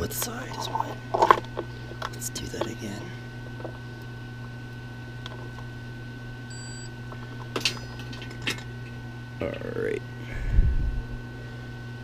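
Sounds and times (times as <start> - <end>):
steady low hum: 0.0 - 12.0
multimeter beep: 6.5 - 7.0.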